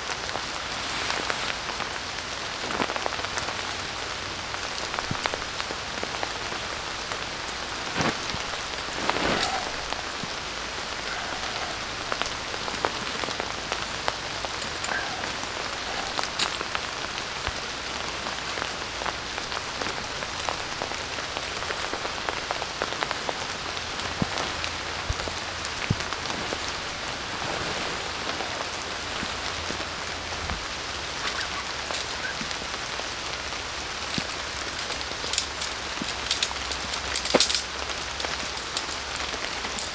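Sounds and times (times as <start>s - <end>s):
raindrops ticking: 0.0s - 39.9s
steady rain hiss: 0.0s - 39.9s.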